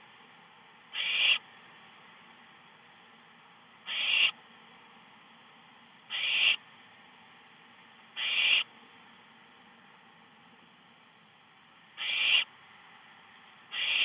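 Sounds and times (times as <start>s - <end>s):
owl chicks rasping hiss calls: 0.9s - 1.5s, 3.8s - 4.4s, 6.1s - 6.6s, 8.2s - 8.7s, 12.0s - 12.5s, 13.7s - 14.0s.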